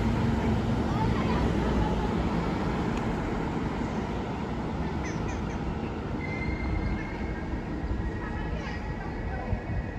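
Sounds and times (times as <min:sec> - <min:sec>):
train rumbling: 0:00.0 - 0:09.9
train wheel squeal: 0:05.0 - 0:09.9.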